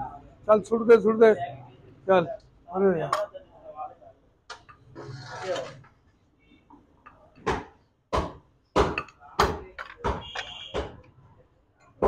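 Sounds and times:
sharp knocks: 7.4s - 11.0s.

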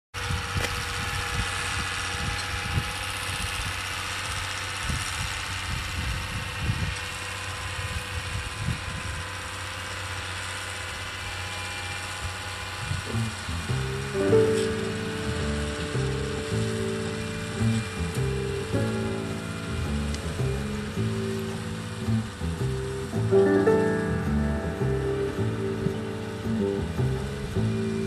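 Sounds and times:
tractor engine droning under load: 0.2s - 28.0s
low rumbling thumps: 13.1s - 28.0s.

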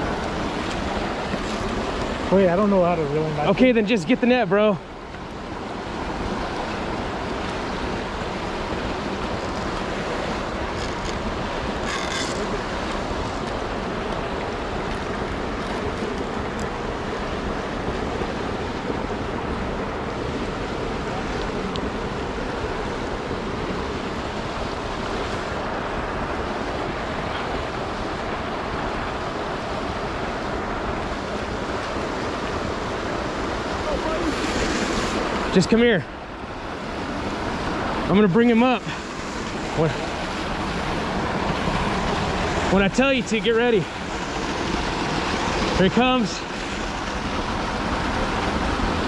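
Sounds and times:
river rushing over rapids: 0.0s - 49.0s.

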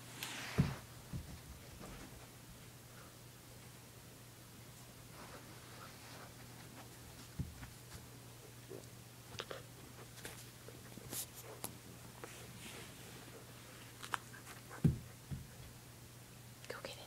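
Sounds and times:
soft thump: 0.6s - 1.4s.

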